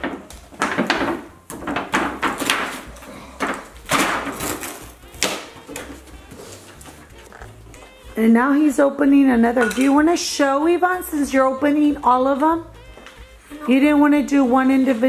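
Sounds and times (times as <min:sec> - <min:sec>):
cardboard packaging tearing open: 0:04.2 - 0:07.5.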